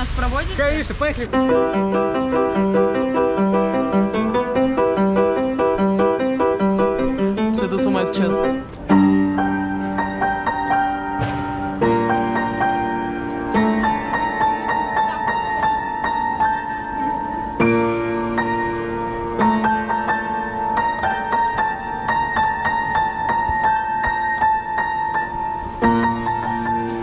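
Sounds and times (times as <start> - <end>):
upright piano playing: 0.0 - 27.0.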